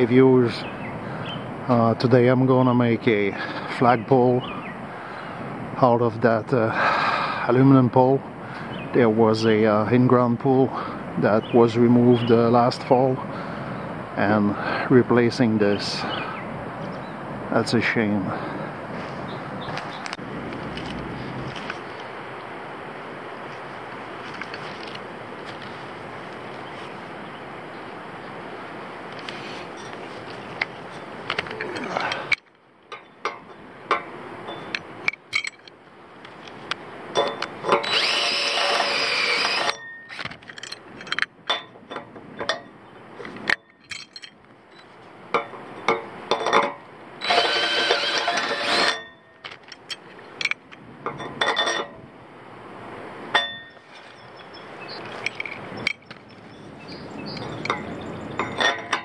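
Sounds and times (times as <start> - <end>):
metal hardware clicking and clinking: 30.6 - 52.0, 55.1 - 56.4, 57.3 - 59.0
cordless drill running: 37.8 - 39.8, 47.2 - 49.0.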